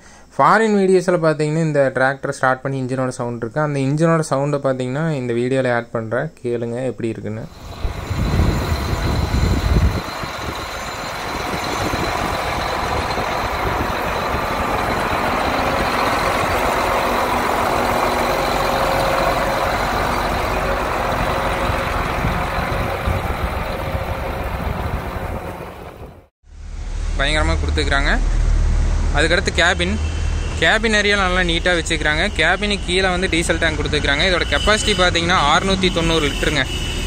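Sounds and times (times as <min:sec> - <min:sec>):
diesel tractor engine running: 0:07.5 - 0:26.3.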